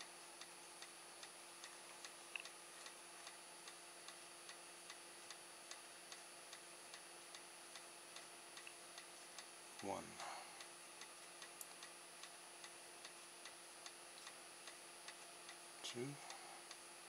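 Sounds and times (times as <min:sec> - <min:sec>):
faint regular ticking: 0:00.0 - 0:17.0
low steady hum: 0:00.0 - 0:17.0.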